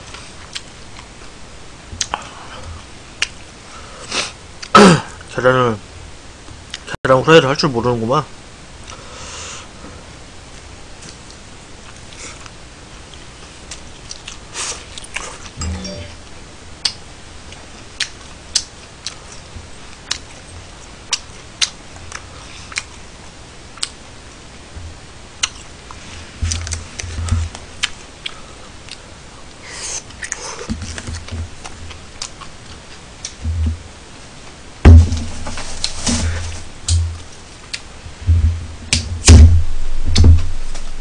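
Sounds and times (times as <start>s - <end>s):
loud thump: 34.9s - 37.2s, 38.3s - 40.5s.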